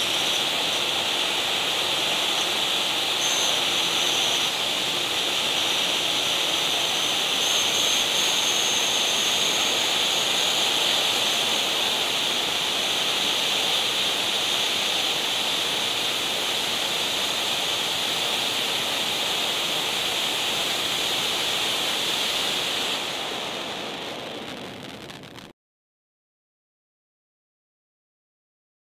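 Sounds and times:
faint high whine: 0.0 - 25.5
firework fountain hissing sparks: 0.0 - 25.5.

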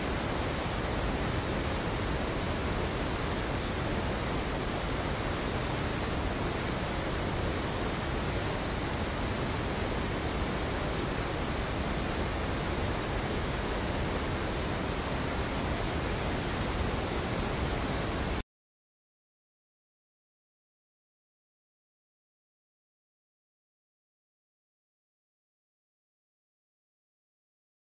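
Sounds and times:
river rushing over rocks: 0.0 - 18.4.

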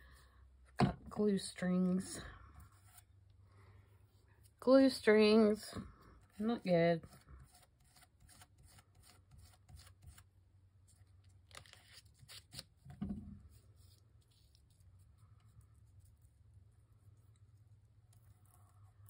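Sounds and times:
paper rustling and crinkling: 11.0 - 15.1.

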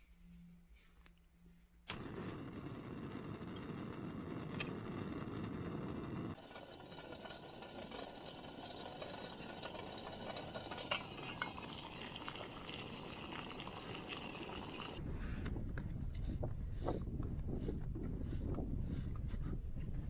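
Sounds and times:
metal pot lid clinking: 6.4 - 15.0
wind on microphone: 15.0 - 20.0.

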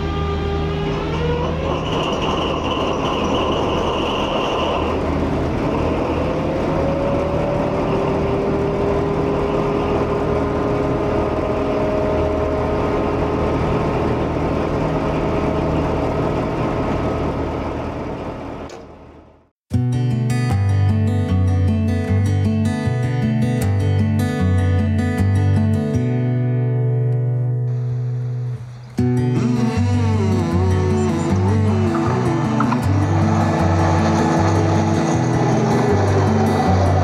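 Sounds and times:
diesel locomotive engine idling: 0.0 - 19.5, 28.7 - 37.0.

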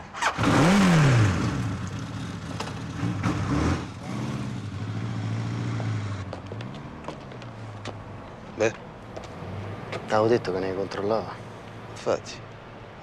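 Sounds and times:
motorcycle engine revving: 0.2 - 6.9.

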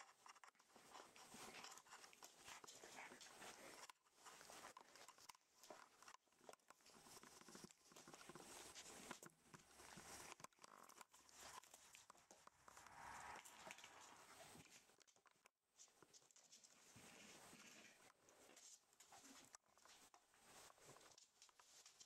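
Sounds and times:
puppy rustling and scratching: 0.0 - 22.0.

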